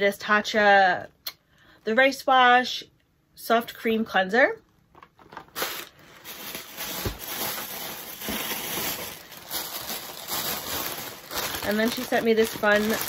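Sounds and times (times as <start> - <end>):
plastic wrapping crinkling: 4.9 - 13.0.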